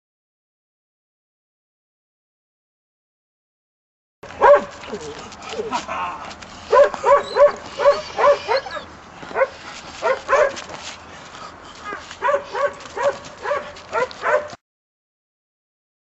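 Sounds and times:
puppy barking: 4.3 - 5.8, 6.7 - 10.7, 11.8 - 14.6.

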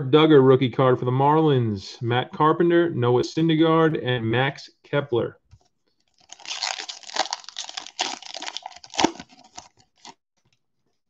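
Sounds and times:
foil wrapper crinkling and tearing: 6.0 - 10.2.

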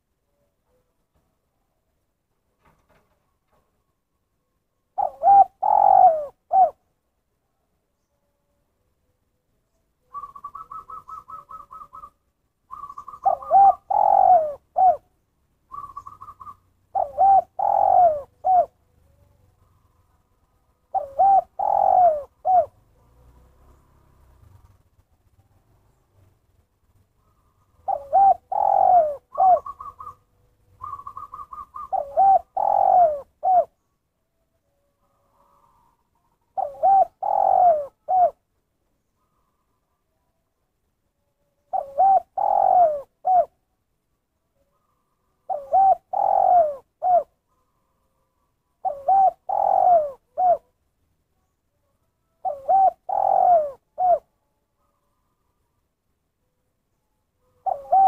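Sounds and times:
dove cooing: 4.9 - 7.0, 10.0 - 24.8, 27.2 - 33.9, 35.0 - 40.2, 41.6 - 43.8, 44.6 - 50.8, 52.2 - 55.6, 57.4 - 58.0.

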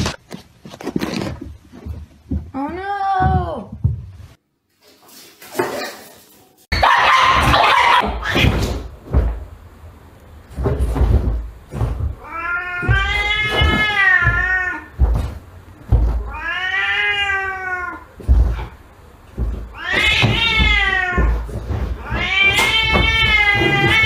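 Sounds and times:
cat yowling: 6.8 - 8.4, 12.2 - 14.9, 16.2 - 18.1, 19.7 - 21.4, 22.0 - 24.0.

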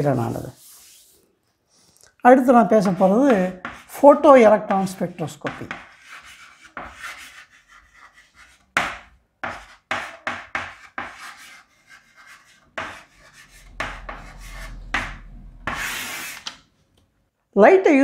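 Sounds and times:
pen scraping on surface: 2.8 - 4.2, 4.8 - 16.7.

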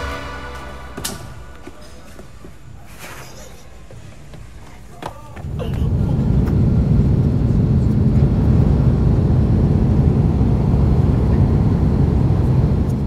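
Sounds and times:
jet engines rumbling in cabin: 5.4 - 13.0.

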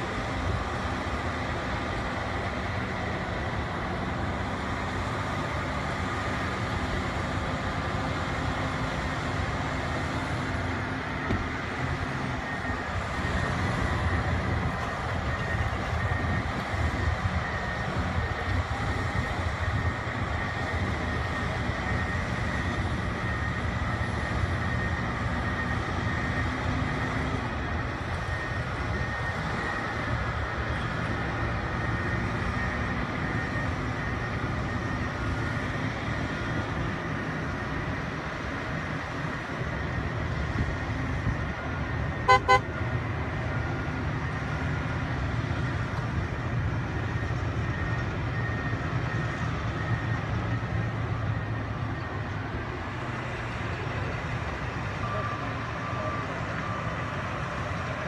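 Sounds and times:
diesel engines running under load: 0.0 - 58.0
high whine: 42.2 - 42.7
short beeps: 42.3 - 42.6.

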